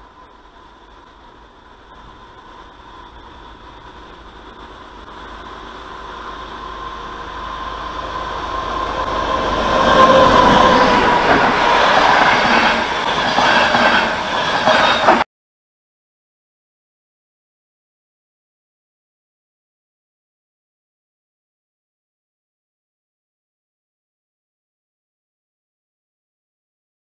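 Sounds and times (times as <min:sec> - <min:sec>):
passenger train passing: 0:00.0 - 0:15.2
wheels rumbling on rails: 0:00.0 - 0:15.2.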